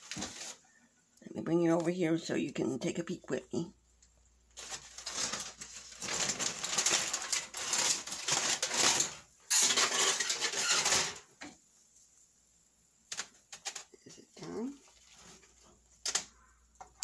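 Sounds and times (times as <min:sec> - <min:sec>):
aluminium foil crinkling: 0:00.0 - 0:00.6, 0:04.5 - 0:11.3, 0:13.0 - 0:17.0.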